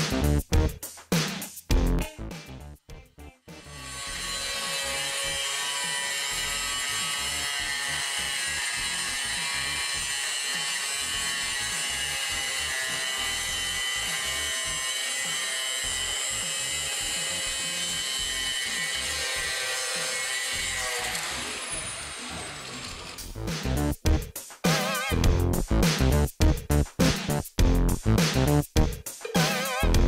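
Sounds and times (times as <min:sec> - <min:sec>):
angle grinder grinding sheet metal: 0:03.5 - 0:23.5.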